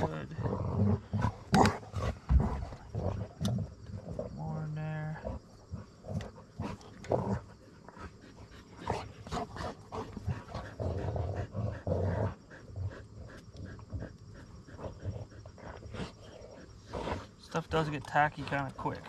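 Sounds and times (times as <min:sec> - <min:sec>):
dog panting: 0:05.2 - 0:17.6.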